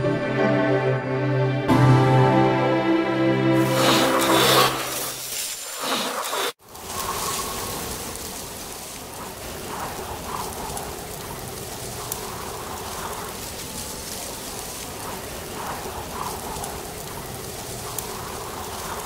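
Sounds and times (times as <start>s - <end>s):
steady rain falling: 3.6s - 19.0s.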